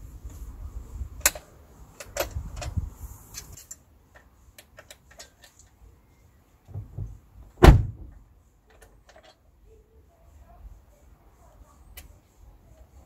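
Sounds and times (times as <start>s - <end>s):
car door slamming shut: 6.7s - 8.2s.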